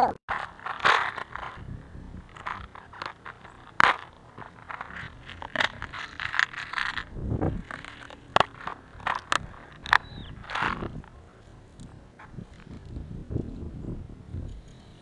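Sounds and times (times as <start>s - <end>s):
plastic packet crinkling: 0.3s - 10.8s.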